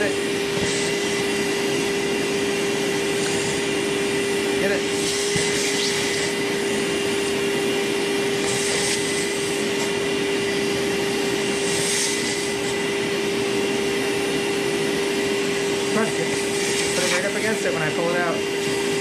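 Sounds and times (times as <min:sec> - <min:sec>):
vacuum cleaner running: 0:00.0 - 0:19.0
suction hiss: 0:00.5 - 0:07.4, 0:08.2 - 0:12.9.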